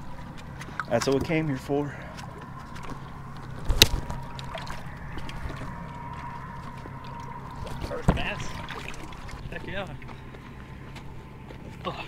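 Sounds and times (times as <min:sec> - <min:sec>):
water sloshing against rocks: 0:00.0 - 0:10.0
steady low hum: 0:00.0 - 0:12.0
sharp water splash: 0:08.2 - 0:09.5.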